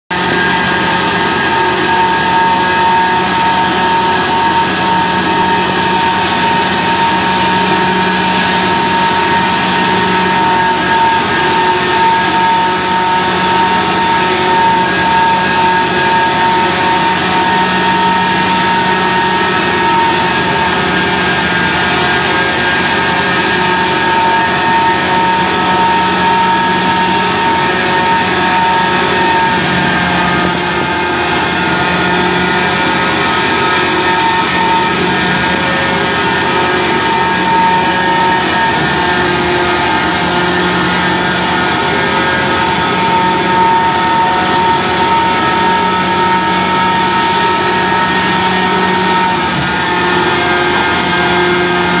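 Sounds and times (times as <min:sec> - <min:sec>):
steady mechanical whine: 0:00.1 - 0:52.0
threshing machine droning: 0:00.1 - 0:52.0.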